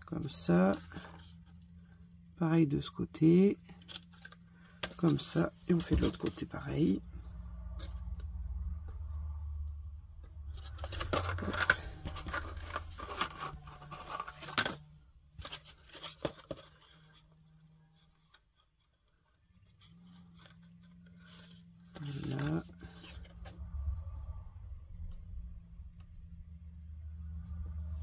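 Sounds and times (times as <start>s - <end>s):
cardboard crackling and rustling: 0.3s - 1.9s, 3.4s - 7.0s, 10.4s - 23.6s.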